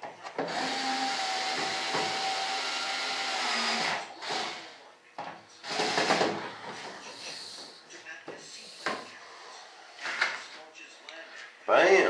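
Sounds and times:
handheld power tool motor: 0:00.4 - 0:04.8, 0:05.6 - 0:06.4.

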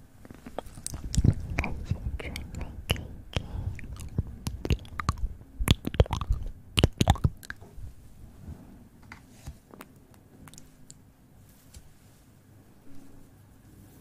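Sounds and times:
lip smacks: 0:00.2 - 0:07.6, 0:09.8 - 0:11.0
tongue clicks: 0:00.3 - 0:07.6, 0:10.5 - 0:11.0.

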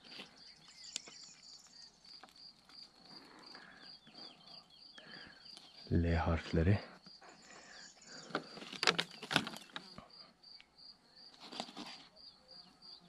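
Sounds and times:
insect chirping: 0:00.0 - 0:13.0
handling clicks and crackles: 0:08.2 - 0:10.0.

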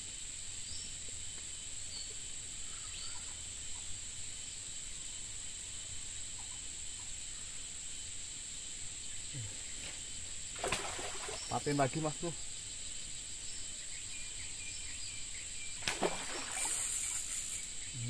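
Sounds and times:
insects droning: 0:00.0 - 0:18.0
faint bird chirps: 0:01.9 - 0:04.1, 0:09.0 - 0:18.0.

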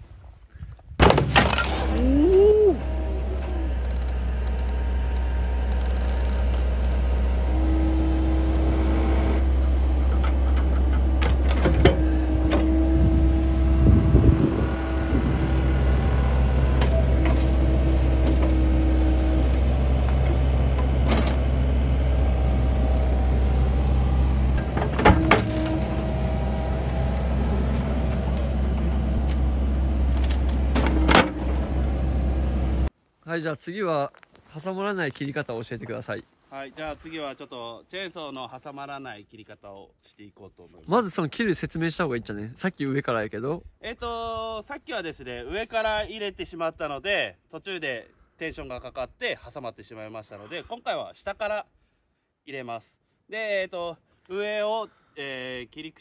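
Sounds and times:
hydraulic whine: 0:01.4 - 0:32.9
excavator diesel engine running: 0:01.9 - 0:32.9.

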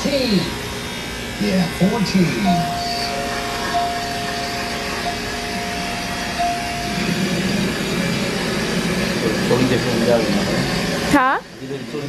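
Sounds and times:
electric hair clippers buzzing: 0:00.0 - 0:12.0
thin steady tone: 0:02.0 - 0:09.2.

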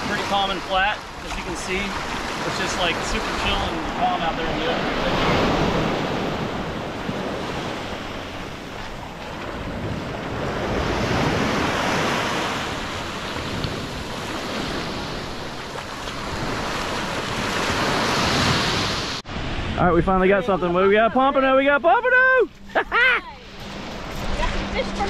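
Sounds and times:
small surf waves washing: 0:00.0 - 0:22.8
wind on microphone: 0:03.2 - 0:20.8.

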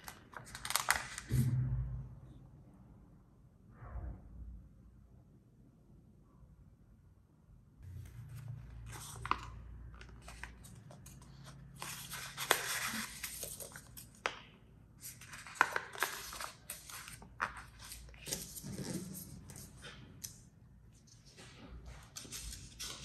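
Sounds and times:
paper bill rustling and crinkling: 0:00.0 - 0:01.4, 0:07.8 - 0:23.0.

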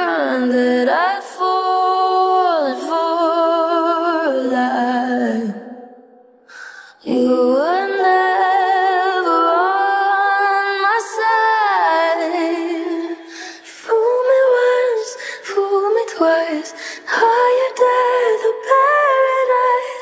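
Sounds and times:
woman singing a cappella: 0:00.0 - 0:20.0
quiet breath: 0:06.4 - 0:07.0, 0:13.1 - 0:13.8, 0:15.1 - 0:15.5, 0:16.7 - 0:17.1.

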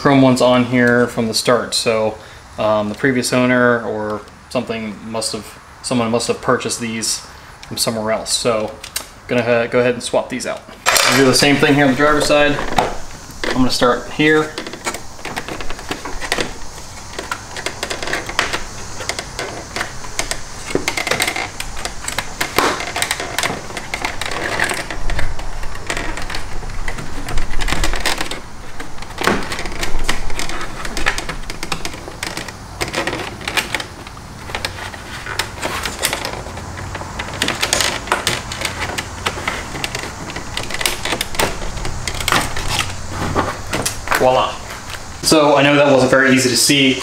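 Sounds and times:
plastic grille clicking and rattling: 0:10.3 - 0:45.2.

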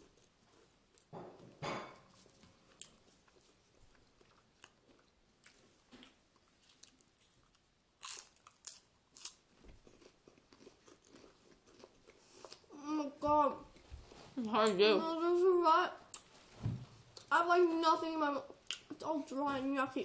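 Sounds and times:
crackers being crunched: 0:04.4 - 0:12.0.

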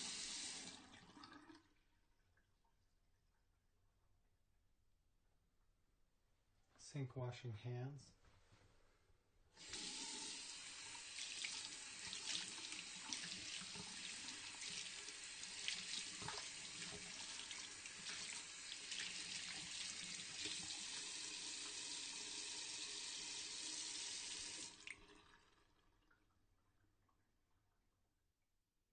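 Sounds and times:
tap water running into sink: 0:00.0 - 0:01.7, 0:09.6 - 0:26.4.

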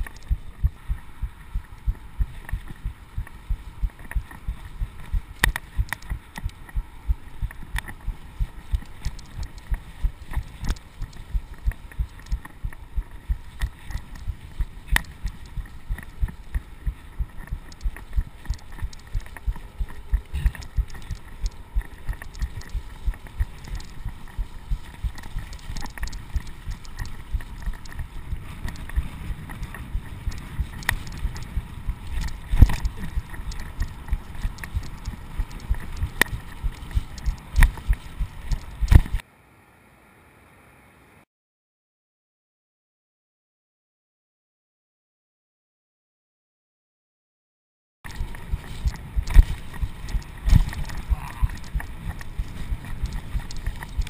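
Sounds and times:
bike tyre rumble on dirt: 0:00.0 - 0:39.2, 0:48.0 - 0:54.0
muffled low thumps: 0:00.0 - 0:39.2.

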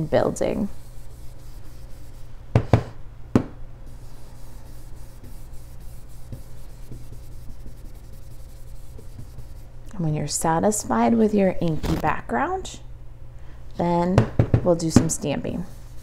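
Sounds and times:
brush scratching on cardstock: 0:00.4 - 0:02.3, 0:03.9 - 0:09.8, 0:15.6 - 0:16.0.

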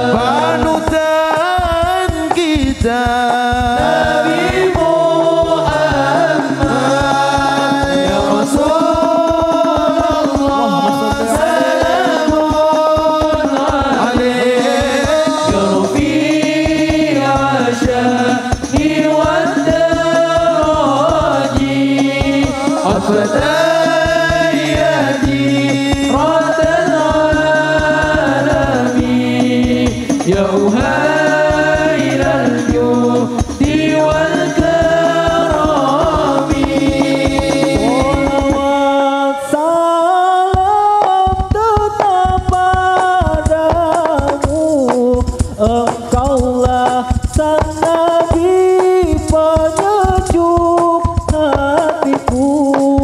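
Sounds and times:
steady drum beat: 0:00.0 - 0:39.3, 0:40.4 - 0:53.0
men chanting over loudspeakers: 0:00.0 - 0:53.0
sustained bass notes: 0:14.2 - 0:38.9.

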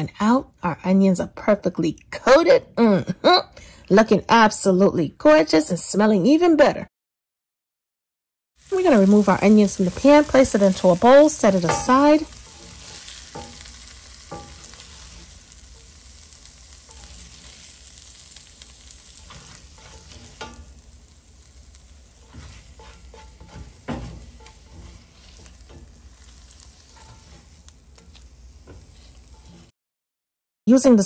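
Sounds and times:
faint sizzle: 0:08.6 - 0:29.7
spatula scraping a skillet: 0:08.6 - 0:29.8.

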